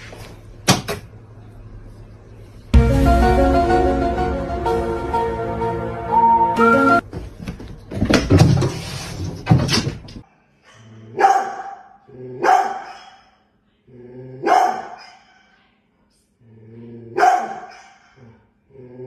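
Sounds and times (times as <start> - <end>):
background music: 2.8 - 7.0
dog barking: 11.1 - 13.4, 14.4 - 15.4, 17.2 - 18.2.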